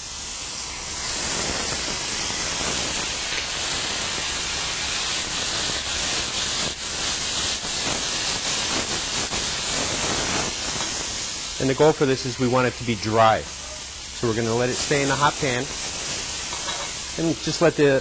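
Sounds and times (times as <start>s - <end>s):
vinegar sizzling in a pan: 0.0s - 18.0s.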